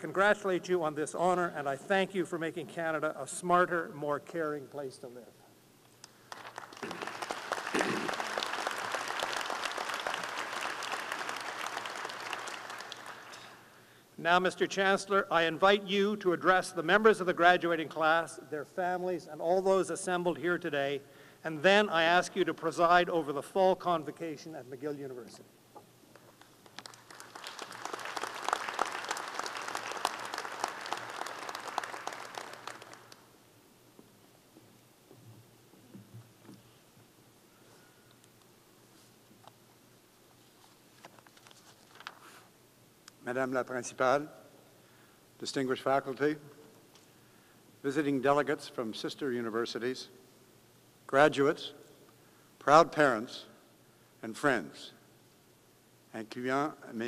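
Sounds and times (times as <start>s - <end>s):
audience applauding: 6.3s - 13.7s, 26.4s - 33.3s.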